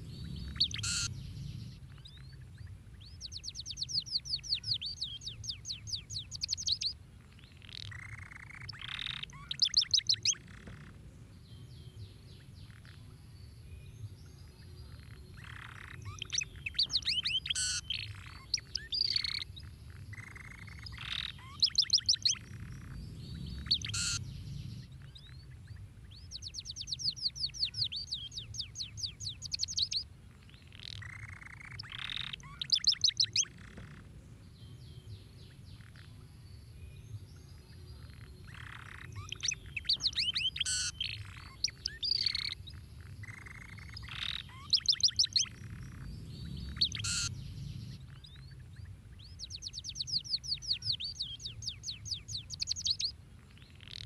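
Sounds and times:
canary singing: 0:00.0 - 0:02.4, 0:03.0 - 0:10.9, 0:15.0 - 0:30.0, 0:30.6 - 0:34.0, 0:37.8 - 0:48.4, 0:49.2 - 0:53.1
low rumble: 0:00.0 - 0:03.2, 0:22.4 - 0:26.4, 0:45.5 - 0:49.4.

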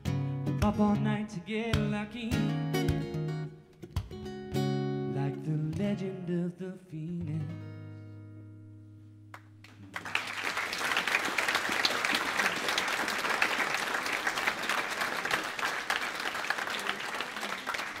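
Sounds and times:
audience applause: 0:09.6 - 0:18.0.

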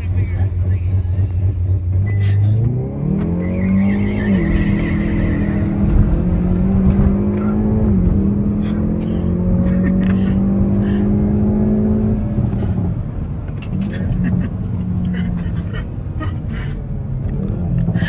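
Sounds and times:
car engine revving hard: 0:01.8 - 0:13.0.

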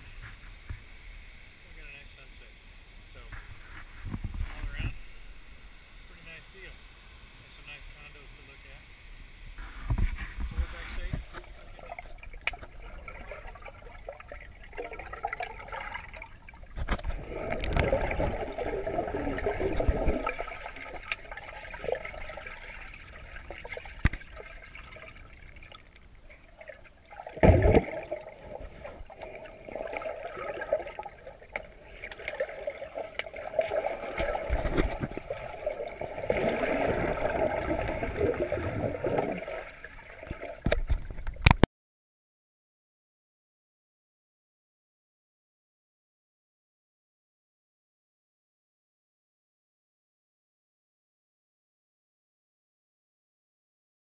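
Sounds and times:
underwater gurgling and bubbling: 0:09.8 - 0:41.6.

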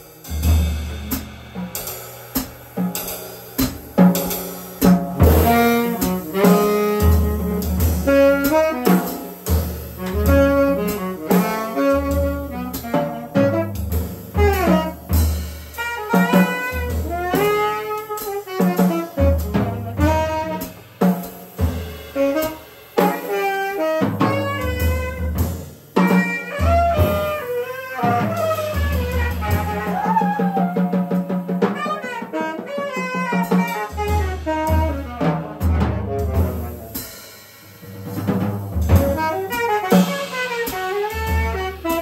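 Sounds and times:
busy drumming with cymbals: 0:00.0 - 0:42.0.

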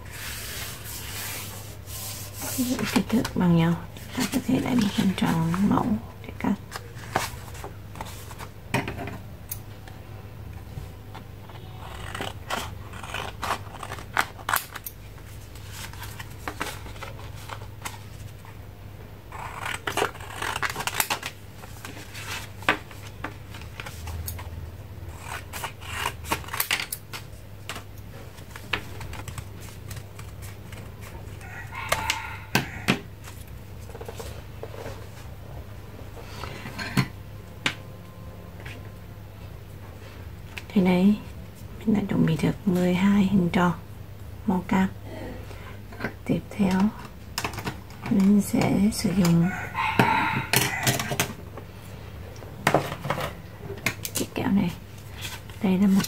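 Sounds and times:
scissors cutting paper: 0:11.6 - 0:15.0, 0:19.3 - 0:21.3, 0:25.1 - 0:27.1.

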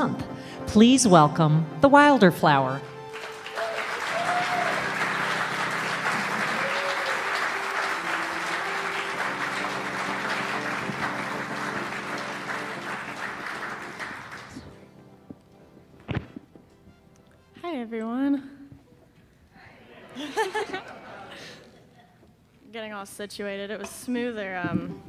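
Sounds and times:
audience applauding: 0:03.0 - 0:14.8.

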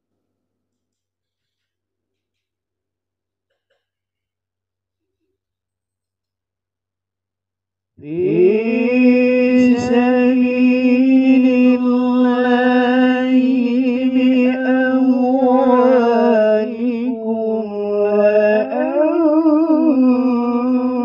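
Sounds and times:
man reciting melodically: 0:08.0 - 0:21.0.

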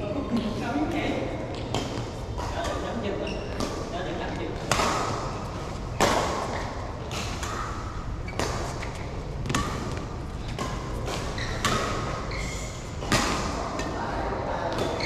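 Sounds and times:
rackets hitting shuttlecock: 0:04.6 - 0:14.0.

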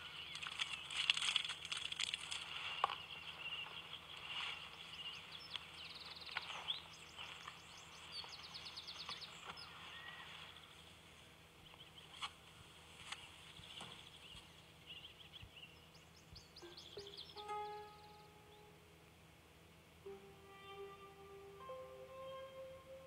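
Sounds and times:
small birds chirping: 0:00.0 - 0:11.0, 0:11.6 - 0:12.3, 0:13.2 - 0:18.8
bird trills: 0:16.4 - 0:18.8.

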